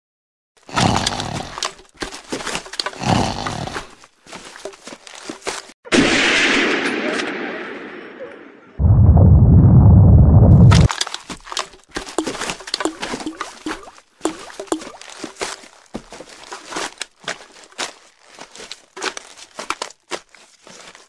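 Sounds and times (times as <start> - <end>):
explosion blast: 5.9 - 10.9
loud low rumble: 8.8 - 10.9.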